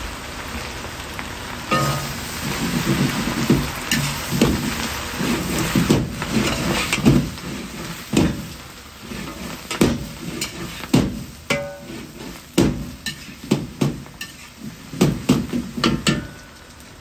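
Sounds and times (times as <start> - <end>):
food sizzling: 0.0 - 17.0
ringing metal clang: 1.7 - 2.1
metal ladle scraping a wok: 1.7 - 16.3.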